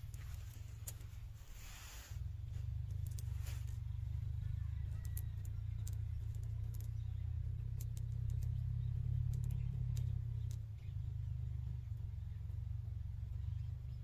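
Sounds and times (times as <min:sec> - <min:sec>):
low engine drone: 0:00.0 - 0:14.0
faint clicks: 0:07.7 - 0:08.6, 0:09.2 - 0:10.6.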